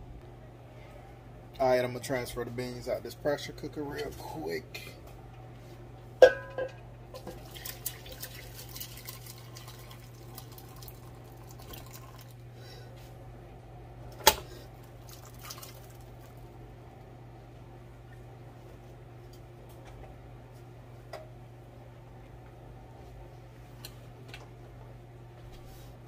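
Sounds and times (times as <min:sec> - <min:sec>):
pots knocking together: 0:06.2 - 0:07.4
liquid pouring and splashing: 0:07.2 - 0:12.4, 0:14.9 - 0:16.4.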